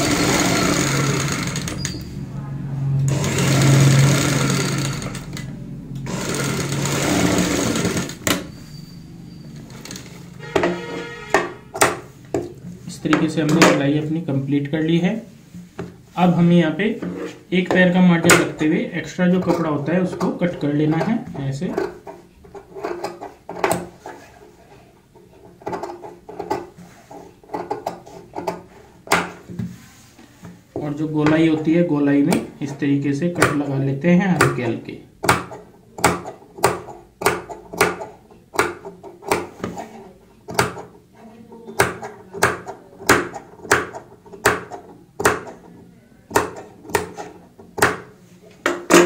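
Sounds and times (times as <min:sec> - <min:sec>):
sewing machine stitching: 0:00.0 - 0:02.1, 0:03.1 - 0:08.6.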